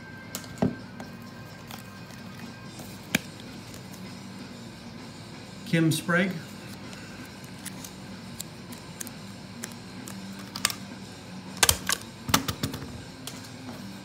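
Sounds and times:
paper rustling and crinkling: 0:06.6 - 0:10.7.

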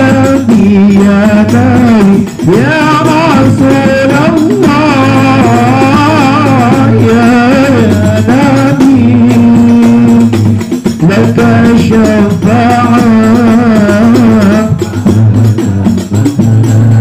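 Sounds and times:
frame drums: 0:00.0 - 0:17.0
person singing melismatically: 0:00.0 - 0:17.0.

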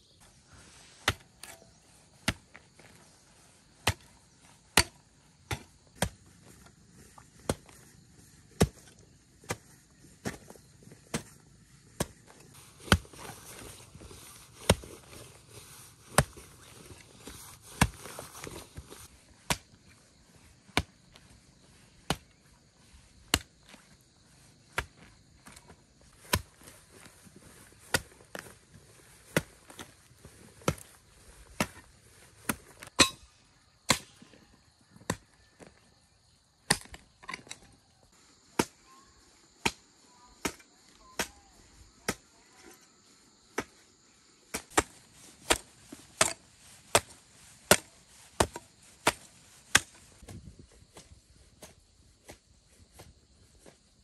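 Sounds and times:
hand tool chopping strikes: 0:32.5 - 0:33.3.

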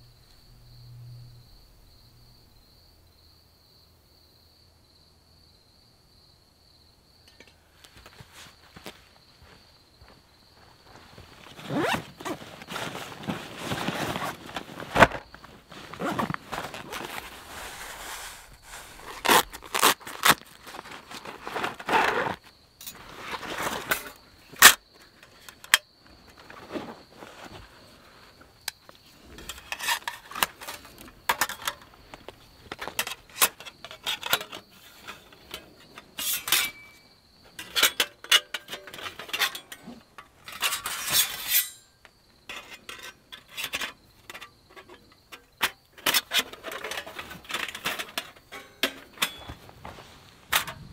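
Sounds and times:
rustle: 0:10.6 - 0:50.9
metal plates clinking and scraping: 0:29.3 - 0:50.9.

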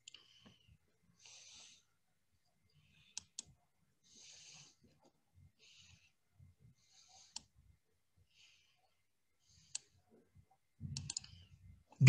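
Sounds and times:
computer mouse clicking: 0:11.0 - 0:11.4.

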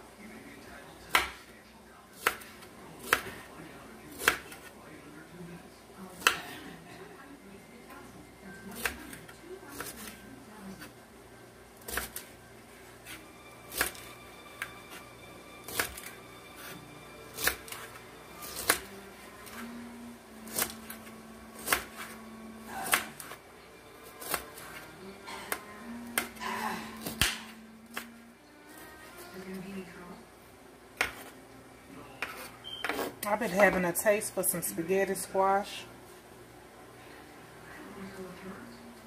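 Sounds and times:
knife chopping on cutting board: 0:01.1 - 0:01.4, 0:02.2 - 0:03.4, 0:04.1 - 0:04.7, 0:11.9 - 0:12.3, 0:15.7 - 0:19.6, 0:20.5 - 0:22.2, 0:22.8 - 0:23.4, 0:24.0 - 0:24.8, 0:27.0 - 0:28.1, 0:31.0 - 0:31.3.

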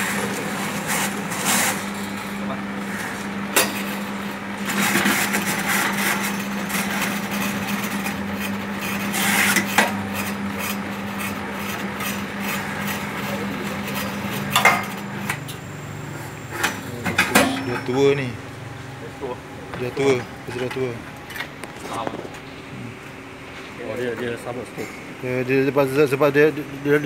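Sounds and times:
blade scraping coconut husk: 0:00.0 - 0:04.0, 0:04.6 - 0:15.0
steady machine hum: 0:00.0 - 0:27.0.

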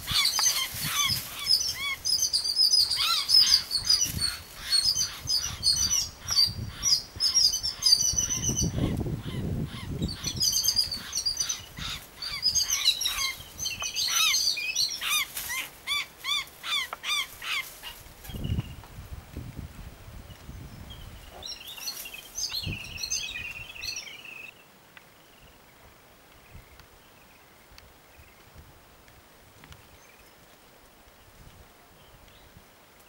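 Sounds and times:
birds harsh alarm calls: 0:00.0 - 0:18.0.

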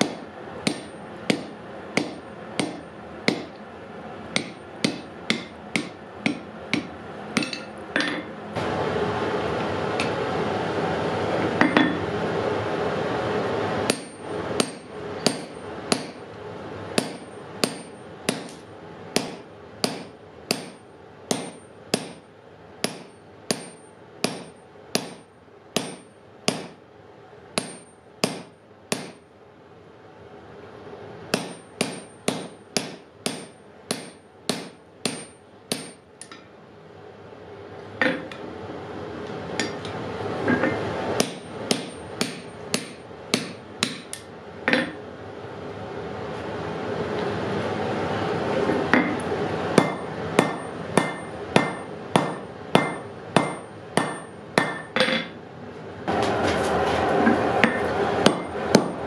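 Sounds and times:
hammer blows ringing on metal: 0:00.0 - 0:03.6, 0:04.4 - 0:08.3, 0:13.9 - 0:16.2, 0:17.0 - 0:18.6, 0:19.2 - 0:26.8, 0:27.6 - 0:29.2, 0:31.3 - 0:36.0, 0:41.2 - 0:45.0, 0:49.8 - 0:55.3, 0:57.6 - 0:59.0.

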